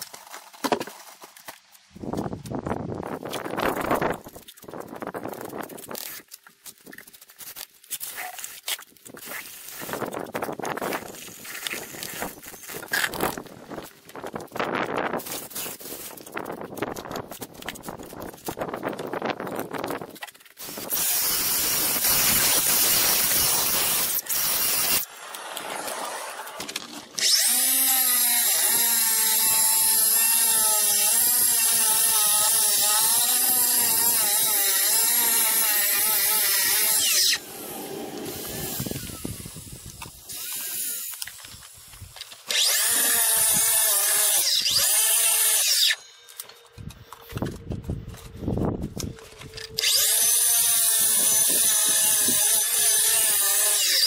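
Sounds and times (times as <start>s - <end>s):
saw cutting stone: 20.6s - 41.3s, 42.5s - 46.2s, 49.7s - 54.0s.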